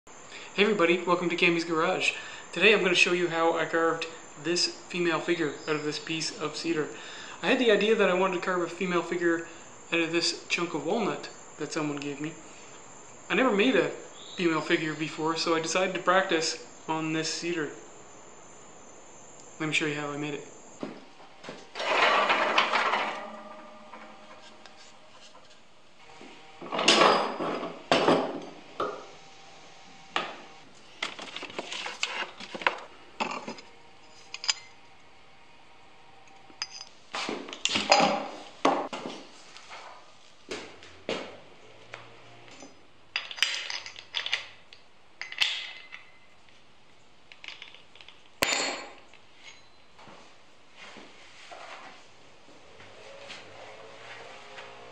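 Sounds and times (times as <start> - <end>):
tools clunking on workbench: 20.8 - 24.5, 26.7 - 29.0, 31.0 - 33.6, 36.6 - 39.2, 47.3 - 49.7.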